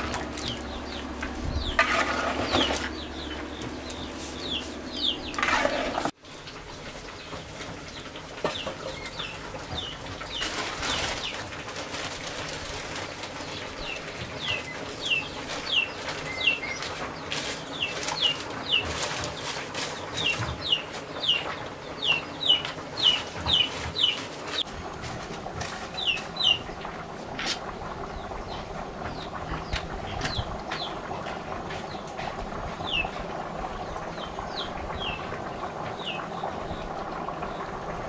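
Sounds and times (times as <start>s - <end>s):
bird chirping: 2.4s - 5.9s.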